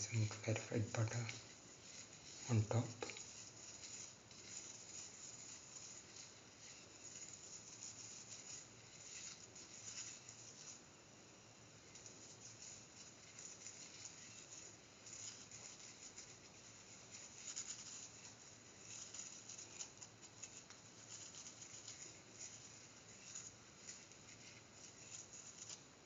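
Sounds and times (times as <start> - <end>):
butter sizzling: 0.0 - 26.0
flatbread crackling in hot pan: 0.0 - 26.0.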